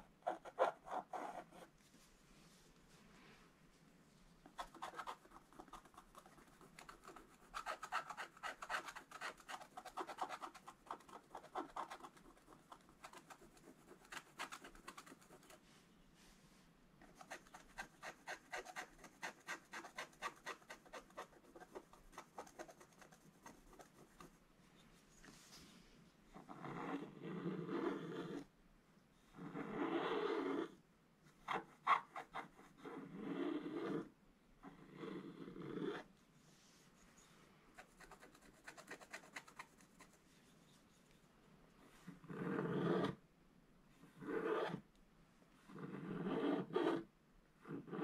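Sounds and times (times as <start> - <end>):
stick scratching paper: 4.5 - 15.6, 17.0 - 24.4, 37.8 - 40.2.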